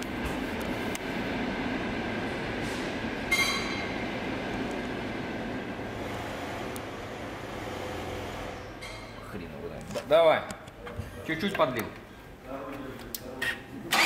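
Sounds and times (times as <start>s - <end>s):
steady mechanical rumble: 0.0s - 14.0s
brief high squeak: 3.3s - 3.9s.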